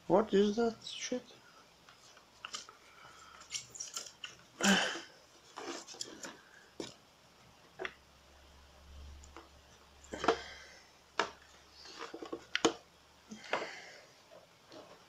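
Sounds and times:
plastic toy crackling and scraping: 1.8s - 4.5s, 5.3s - 6.9s, 11.2s - 12.8s.

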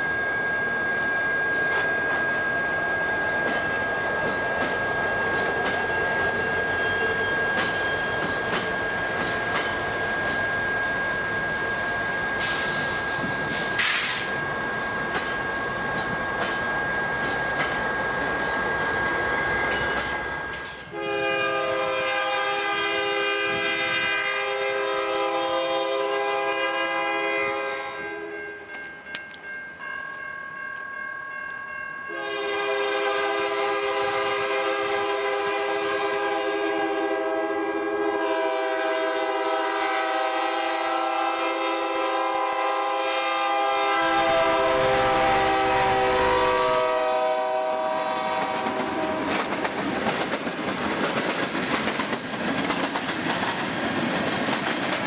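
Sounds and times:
locomotive air horn blasts: 20.9s - 28.5s, 32.1s - 49.4s.

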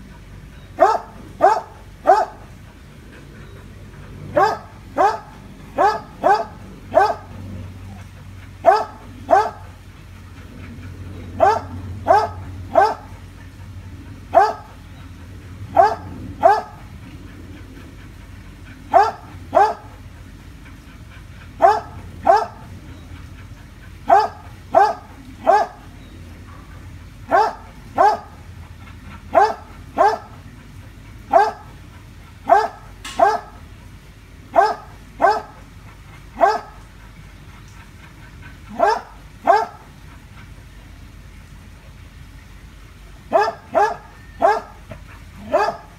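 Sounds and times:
dog barking: 0.8s - 2.4s, 4.3s - 7.3s, 8.6s - 9.6s, 11.4s - 13.1s, 14.3s - 14.7s, 15.7s - 16.8s, 18.9s - 19.9s, 21.6s - 22.7s, 24.1s - 25.8s, 27.3s - 28.4s, 29.3s - 30.4s, 31.3s - 31.7s, 32.4s - 33.6s, 34.5s - 35.6s, 36.4s - 36.8s, 38.7s - 39.9s, 43.3s - 44.8s, 45.4s - 45.9s.

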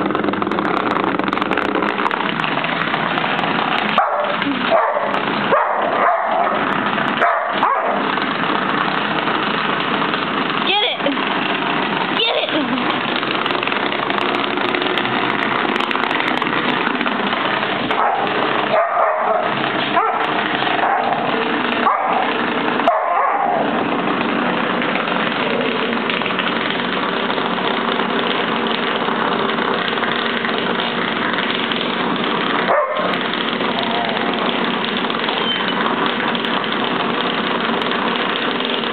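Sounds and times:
massager buzzing on wood floor: 0.0s - 38.9s.

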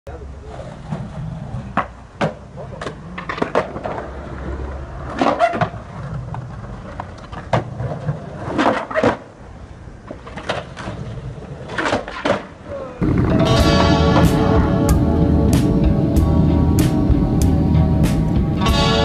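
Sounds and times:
skateboard wheels rolling on concrete: 0.1s - 19.0s
skateboard popping and landing: 0.5s - 9.4s, 10.0s - 12.7s.

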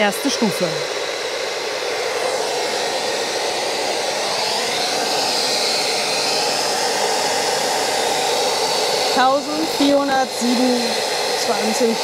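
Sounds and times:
hair dryer running: 0.0s - 12.0s.

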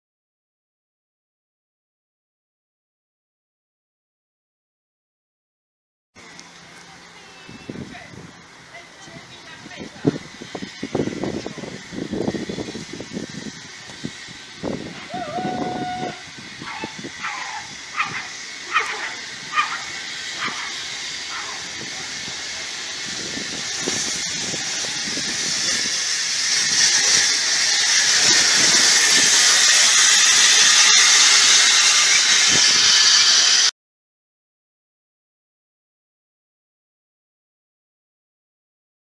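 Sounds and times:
steam locomotive hissing: 6.2s - 33.7s.

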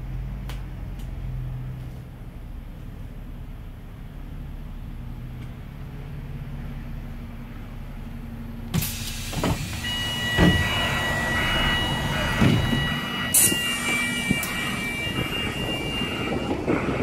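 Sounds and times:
bus engine humming: 0.0s - 17.0s
loud hiss: 8.8s - 16.9s
high-pitched whine: 8.9s - 17.0s.

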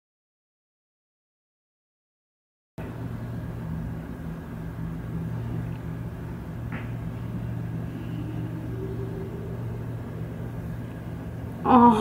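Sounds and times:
faint rumble: 2.8s - 12.0s
steady low hum: 2.8s - 12.0s.

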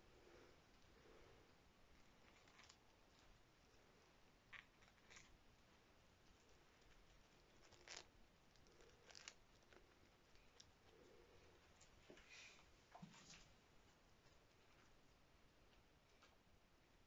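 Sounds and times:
soft rustles and clicks: 1.9s - 16.5s.

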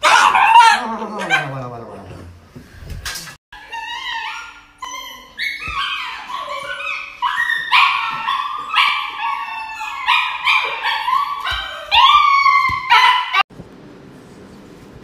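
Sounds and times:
dog yelping and howling: 0.0s - 1.6s, 3.6s - 13.5s.

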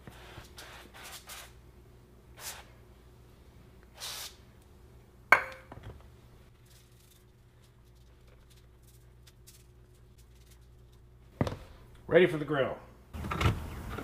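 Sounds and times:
aerosol spray hissing: 3.9s - 4.4s.

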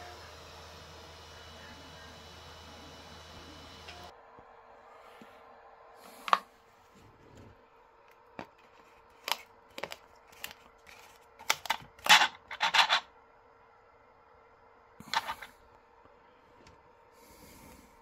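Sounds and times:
faint steady hum: 0.0s - 18.0s
plastic bottle clicking and crackling: 8.4s - 12.8s.

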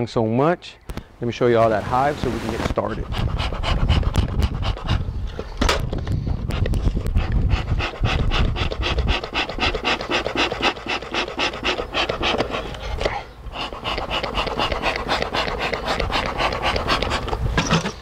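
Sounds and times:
dog panting fast: 2.7s - 5.2s, 6.2s - 17.5s.

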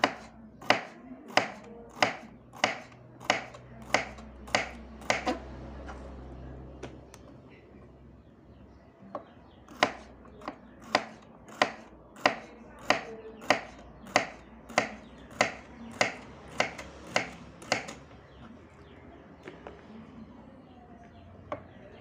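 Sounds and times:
knife chopping on wooden board: 0.0s - 5.4s, 9.7s - 18.0s.

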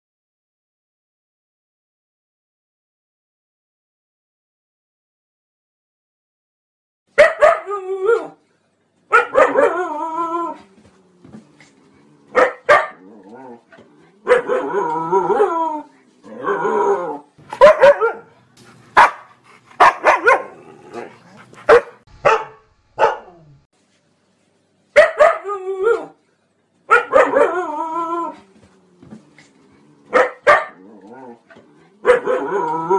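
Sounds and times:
husky barking: 7.2s - 8.2s, 9.1s - 9.8s, 12.3s - 13.0s, 14.2s - 15.5s, 17.4s - 23.4s, 25.0s - 25.5s, 26.9s - 27.6s, 30.1s - 30.8s, 32.0s - 32.6s.

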